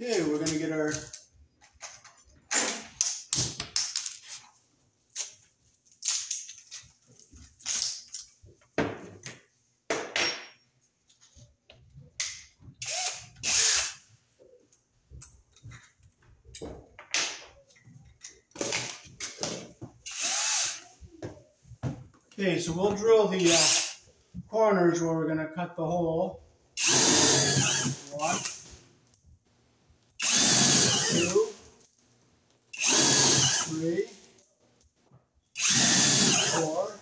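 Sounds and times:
tools clattering and rustling: 1.6 - 2.9.

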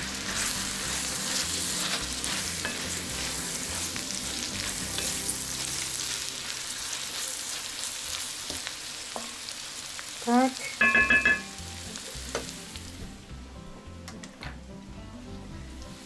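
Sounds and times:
meat sizzling in oil: 0.0 - 13.4, 15.5 - 16.0
spatula scraping a pot: 0.3 - 5.3.

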